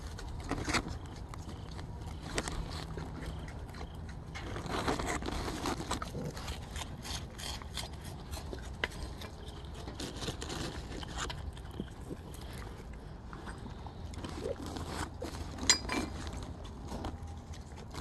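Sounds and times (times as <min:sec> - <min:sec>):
low background hum: 0:00.0 - 0:18.0
raccoons chewing and munching: 0:00.0 - 0:18.0
small clicks and scrapes: 0:00.0 - 0:18.0.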